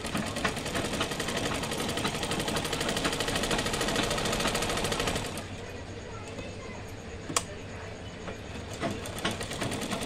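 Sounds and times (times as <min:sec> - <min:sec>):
sewing machine running: 0:00.0 - 0:05.5, 0:08.5 - 0:10.0.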